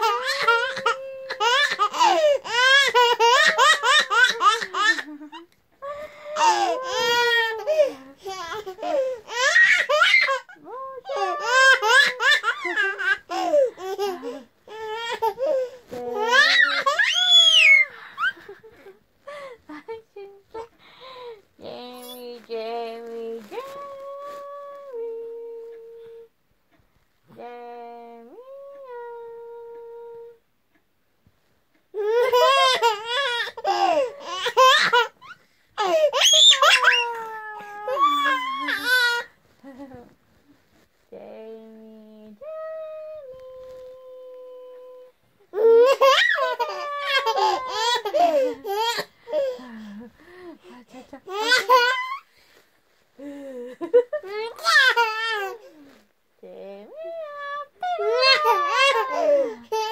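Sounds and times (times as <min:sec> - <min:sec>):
toddler high-pitched squeal: 0:16.2 - 0:17.9, 0:36.1 - 0:39.3
toddler laughing: 0:45.6 - 0:49.5.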